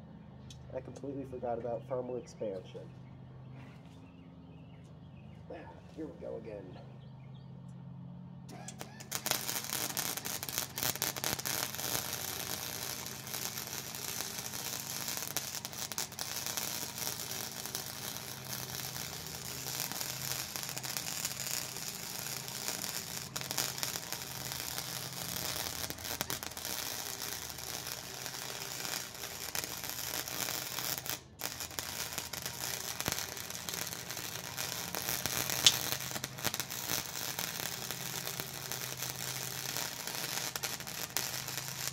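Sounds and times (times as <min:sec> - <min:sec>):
welding arc crackling and sizzling: 0:08.5 - 0:41.9
sharp pop: 0:35.6 - 0:36.0.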